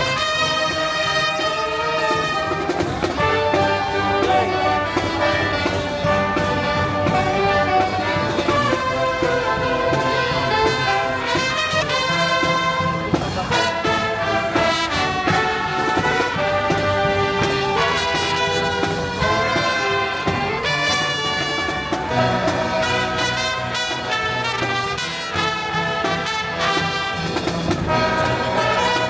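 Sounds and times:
brass instruments playing a tune: 0:00.0 - 0:29.0.

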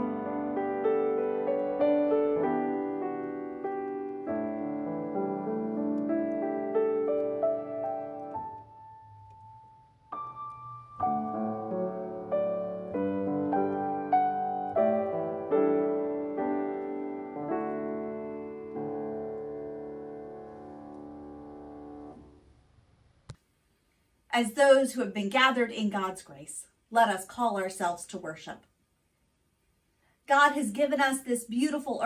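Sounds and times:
slow quiet piano music: 0:00.0 - 0:23.4.

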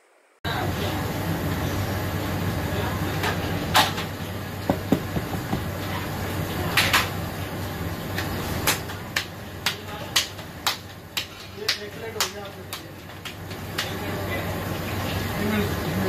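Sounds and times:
low kitchen hum: 0:00.0 - 0:16.0
man clapping hands: 0:08.7 - 0:14.0.

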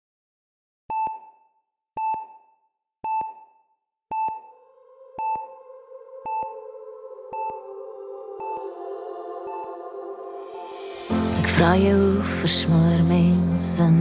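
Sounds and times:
high electronic beep: 0:00.9 - 0:04.6, 0:05.2 - 0:05.6, 0:09.5 - 0:09.7
low synth pad: 0:04.6 - 0:13.2.

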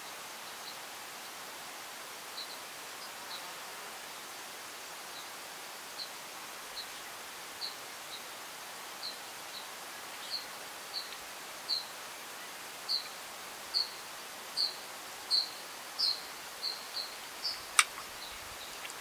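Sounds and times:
faint steady hiss: 0:00.0 - 0:19.0
small bird chirping: 0:12.9 - 0:14.0, 0:14.6 - 0:19.0
sharp click: 0:17.7 - 0:18.1.

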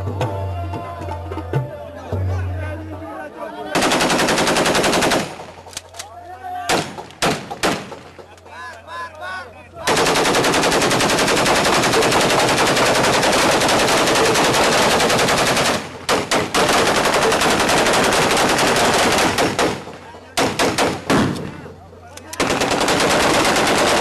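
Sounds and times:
rapid automatic gunfire: 0:03.8 - 0:05.6, 0:06.7 - 0:08.1, 0:09.8 - 0:21.3, 0:22.4 - 0:24.0.

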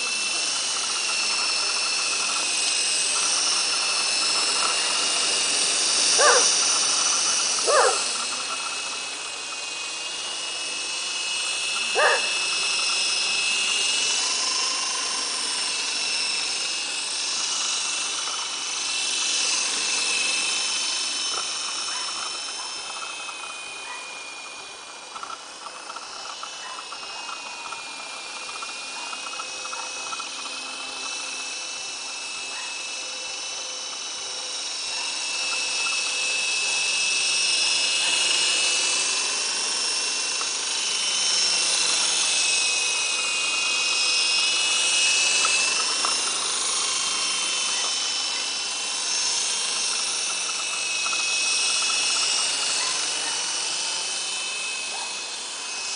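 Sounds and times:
toy helicopter rotor whine: 0:00.0 - 0:55.9
dog barking: 0:06.2 - 0:06.5, 0:07.6 - 0:08.1, 0:11.9 - 0:12.3, 0:23.8 - 0:24.1, 0:26.6 - 0:26.8, 0:32.5 - 0:32.7, 0:52.8 - 0:53.4.

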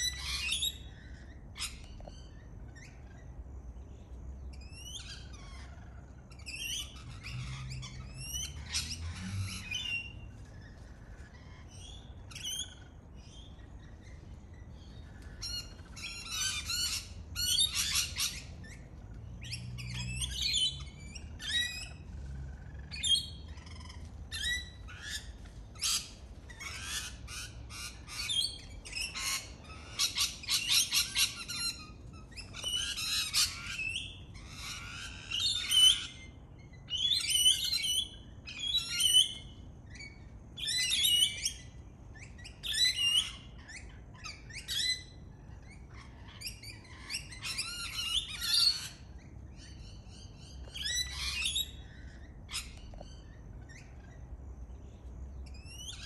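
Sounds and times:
parrots screeching: 0:00.0 - 0:03.4, 0:04.6 - 0:54.4, 0:55.4 - 0:56.0.

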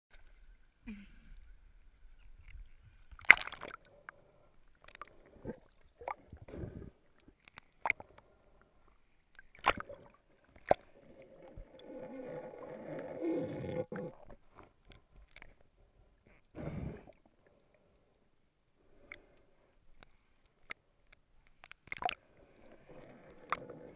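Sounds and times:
muffled water sloshing: 0:01.5 - 0:11.8.

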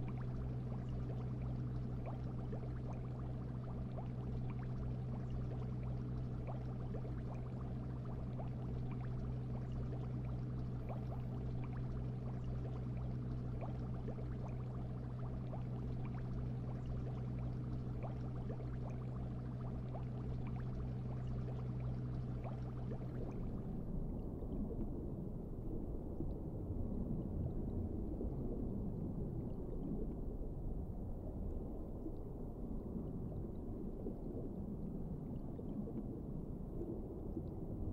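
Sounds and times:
water bubbling: 0:00.0 - 0:24.8
filter pump hum: 0:00.0 - 0:25.2.

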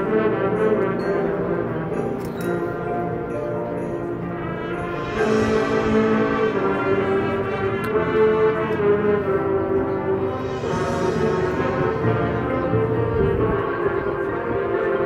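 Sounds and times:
marching band brass chords: 0:00.0 - 0:15.0.

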